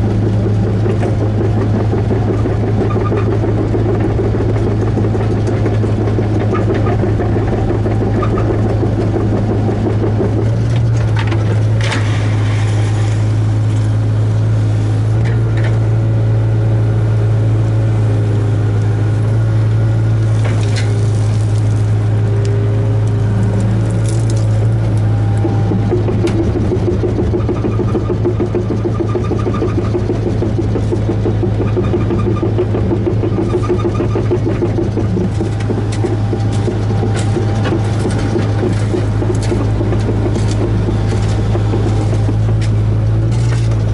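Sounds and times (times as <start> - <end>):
excavator diesel engine droning: 0.0 - 43.9
bucket scraping gravel and soil: 11.9 - 14.1, 20.2 - 22.1.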